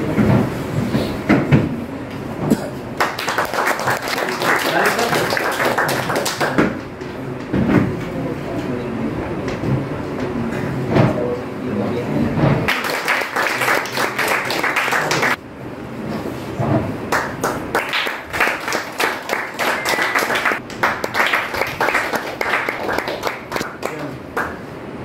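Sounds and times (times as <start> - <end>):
audience applauding: 3.0 - 6.8, 12.7 - 15.4, 17.1 - 24.7.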